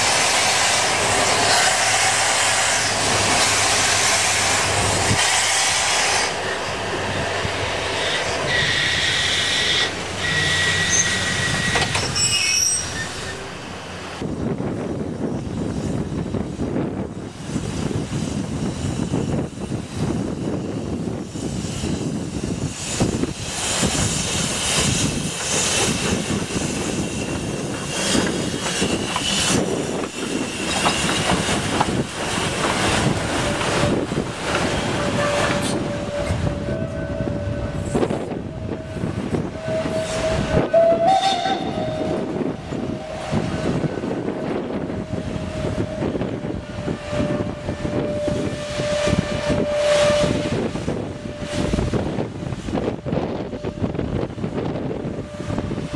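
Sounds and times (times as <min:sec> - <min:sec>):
steam locomotive rumbling: 0:00.0 - 0:55.9
steady whistle-like tone: 0:35.0 - 0:52.0.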